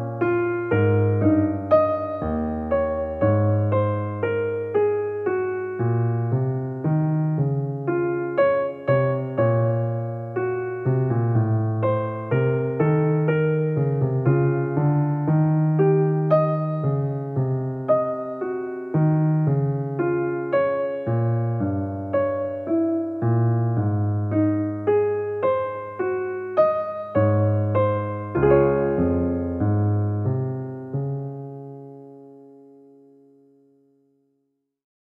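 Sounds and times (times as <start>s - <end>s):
gentle piano music: 0.0s - 34.3s.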